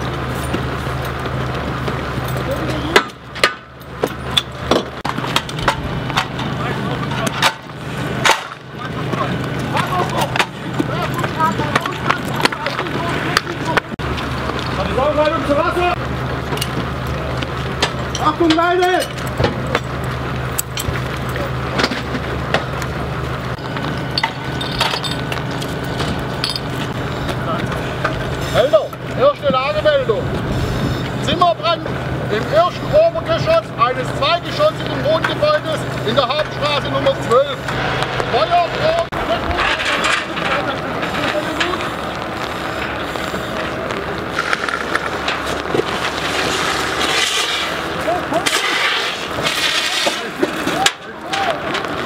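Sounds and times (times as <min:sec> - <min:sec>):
low engine hum: 0:00.0 - 0:49.6
metallic clinks of hose couplings: 0:26.4 - 0:26.7.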